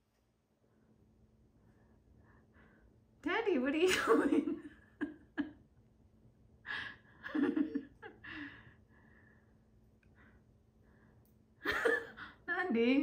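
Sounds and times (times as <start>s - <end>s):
person breathing: 1.6s - 3.0s, 6.6s - 7.2s, 8.2s - 11.3s.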